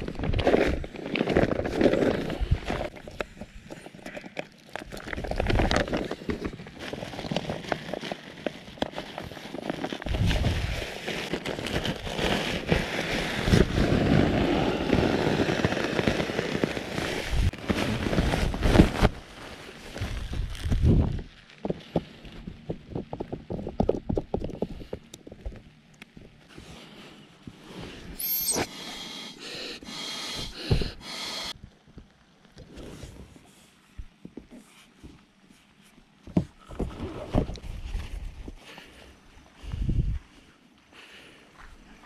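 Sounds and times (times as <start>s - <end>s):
nylon fabric crinkling and rustling: 4.7s - 22.9s.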